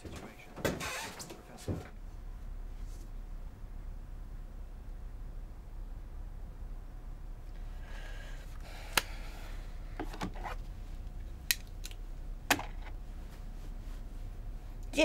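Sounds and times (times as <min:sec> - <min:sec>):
low room hum: 0:00.0 - 0:15.0
paper or cloth rustling: 0:13.0 - 0:14.5.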